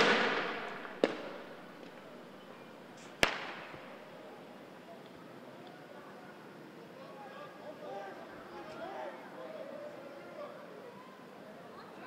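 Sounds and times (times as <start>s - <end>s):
tear gas canister bangs: 0.0s - 1.4s, 3.2s - 3.8s.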